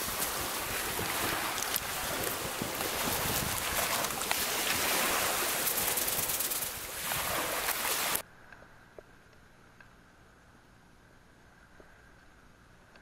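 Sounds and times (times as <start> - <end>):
sea surf: 0.0 - 8.2
wind: 0.0 - 13.0
faint hiss: 5.2 - 8.2.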